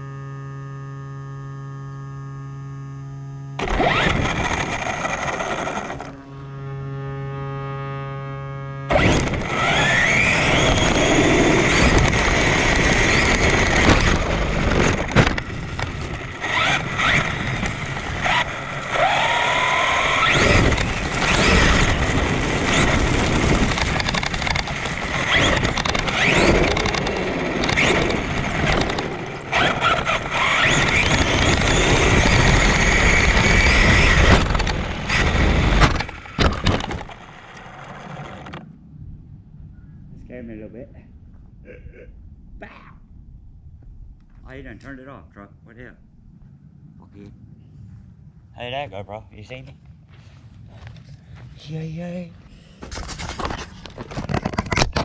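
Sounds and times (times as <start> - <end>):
electric motor whine: 0.0 - 38.7
tyre and chassis noise: 3.6 - 8.0, 8.6 - 39.3, 49.6 - 55.0
sharp knocks from landings: 13.0 - 19.0.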